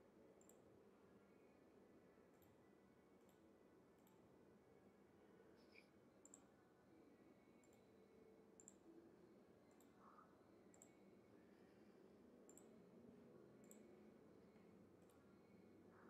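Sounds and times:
faint computer mouse clicks: 0.4s - 0.6s, 4.0s - 4.2s, 5.6s - 6.5s, 7.6s - 7.8s, 8.6s - 8.8s, 9.7s - 10.0s, 10.7s - 11.0s, 12.5s - 12.7s, 13.6s - 13.9s.

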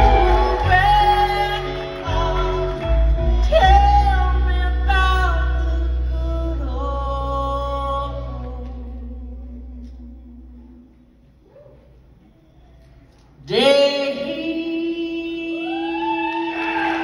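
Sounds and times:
live band playing: 0.0s - 8.2s
strong bass: 0.0s - 10.9s
person singing: 0.0s - 11.1s, 13.4s - 17.0s.

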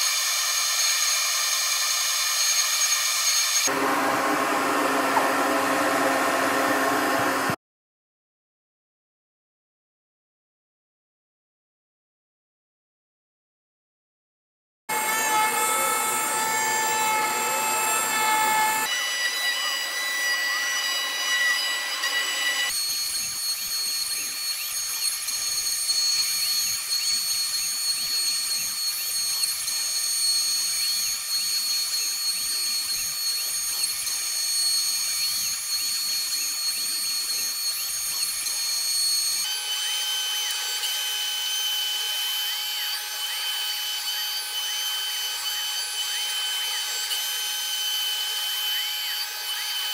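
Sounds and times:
router spindle whining: 0.0s - 7.6s, 14.9s - 49.9s
metal cutting chatter: 14.9s - 28.8s.

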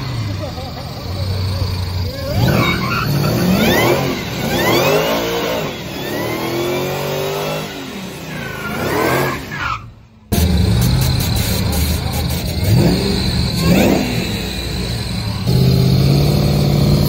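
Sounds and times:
engine idling: 0.0s - 2.5s, 10.2s - 17.0s
spinning tyres hissing: 0.0s - 17.0s
engine revving hard: 2.0s - 9.6s, 10.3s - 17.0s.

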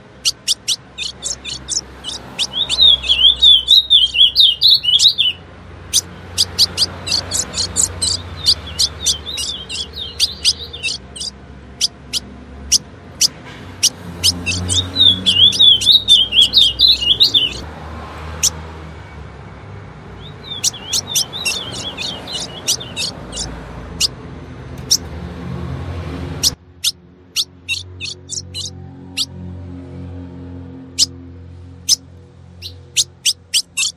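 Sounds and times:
bird chip notes: 0.0s - 17.6s, 20.4s - 23.5s, 27.4s - 28.7s
bird fast warbling: 0.0s - 17.6s, 20.2s - 24.1s, 24.8s - 25.0s, 26.4s - 29.3s, 32.6s - 33.9s.

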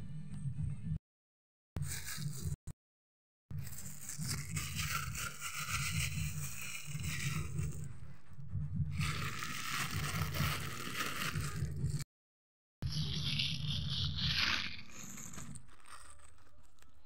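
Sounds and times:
plastic bag crinkling: 9.0s - 12.0s, 13.2s - 17.0s.

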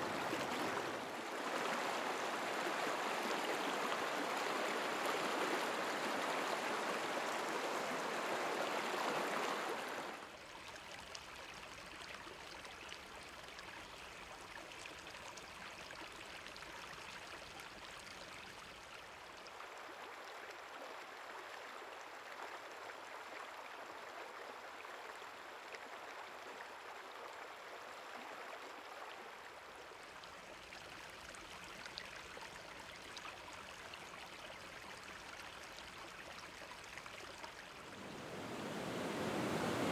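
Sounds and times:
creek running over rocks: 0.0s - 39.9s
waterfall splashing over rocks: 38.0s - 39.9s.

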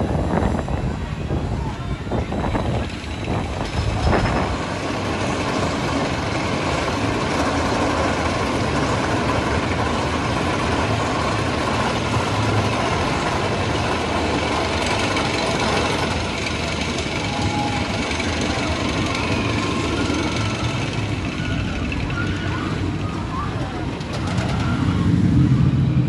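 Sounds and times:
roller coaster chain lift clatter: 2.2s - 25.8s.

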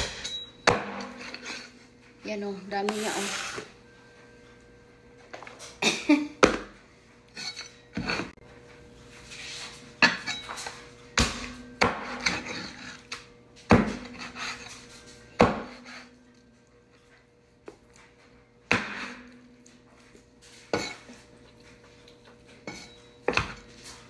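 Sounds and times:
cleaver chopping meat on wooden board: 11.2s - 12.5s, 15.4s - 15.9s.

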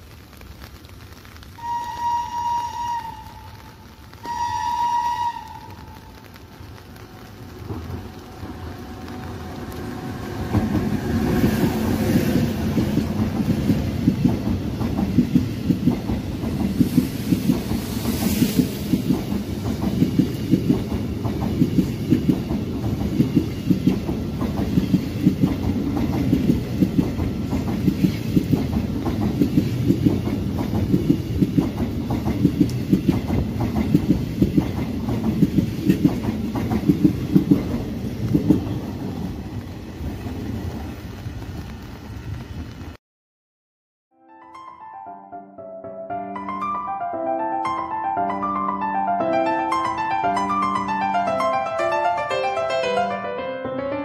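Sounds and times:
train horn blasts: 1.6s - 6.3s
train passing at speed: 1.6s - 43.0s, 47.4s - 53.2s.

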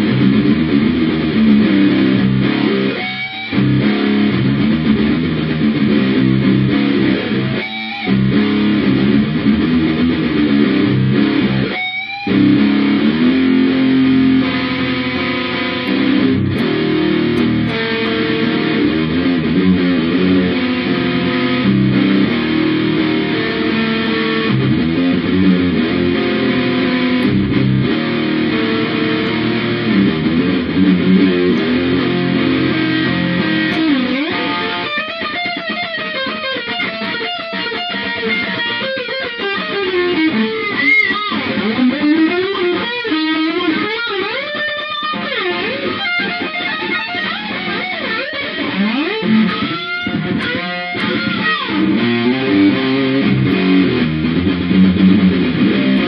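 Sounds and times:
electric guitar chords: 0.0s - 56.0s
electric guitar lead with bending notes: 0.0s - 56.0s.

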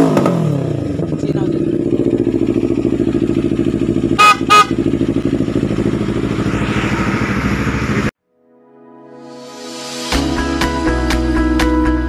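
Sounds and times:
motorcycle idling: 0.5s - 8.1s
loud horn toots: 4.0s - 6.0s.

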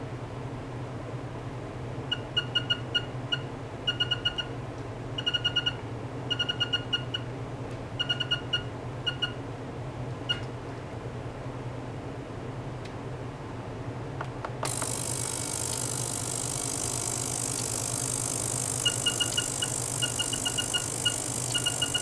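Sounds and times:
short electronic beeps: 2.1s - 4.5s, 5.2s - 7.2s, 8.0s - 9.4s, 18.7s - 22.0s
steady low hum: 7.0s - 22.0s.

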